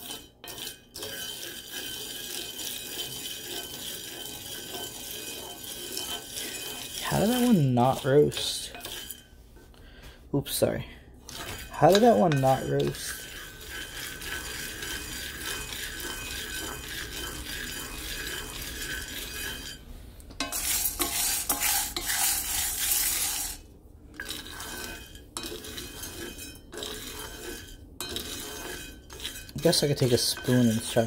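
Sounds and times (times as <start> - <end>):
coffee beans rattling in a skillet: 0.0 - 9.4, 10.4 - 19.8, 20.4 - 31.0
utensil stirring beans: 0.0 - 31.0.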